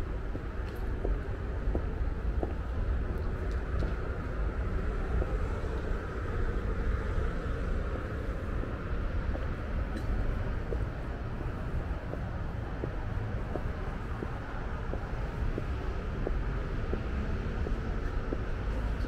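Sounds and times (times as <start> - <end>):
faint light ticks: 9.3 - 10.8.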